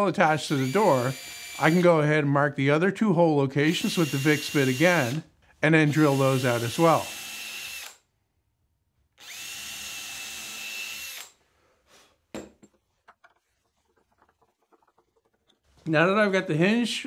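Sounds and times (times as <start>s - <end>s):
cordless drill whining: 0.4s - 1.8s, 3.7s - 5.2s, 5.9s - 8.0s, 9.2s - 11.4s.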